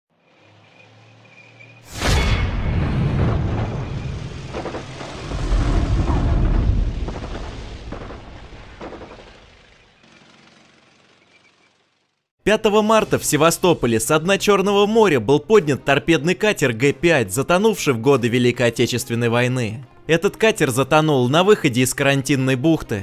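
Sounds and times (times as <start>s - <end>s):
gunfire: 1.9s - 5.2s, 5.8s - 10.2s
explosion: 1.9s - 9.9s
rumbling blasts: 1.9s - 10.0s.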